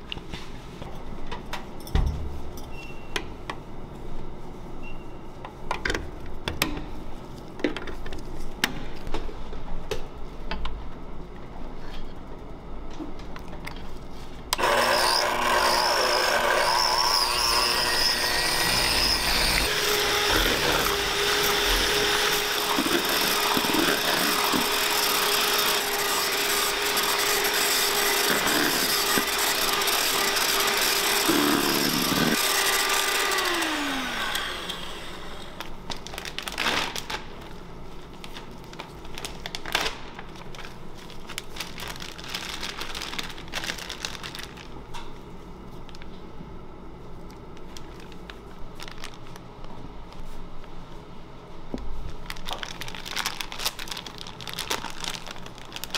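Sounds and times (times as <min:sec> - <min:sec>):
electric hand mixer whipping cream: 0:14.6 - 0:35.6
plastic rustling: 0:35.6 - 0:46.2, 0:47.1 - 0:50.4, 0:51.8 - 0:55.9.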